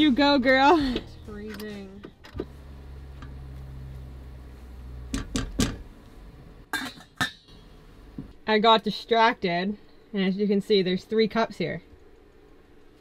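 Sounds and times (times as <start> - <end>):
low steady hum: 0.0 - 13.0
metal lid clinking on pot: 6.7 - 7.6.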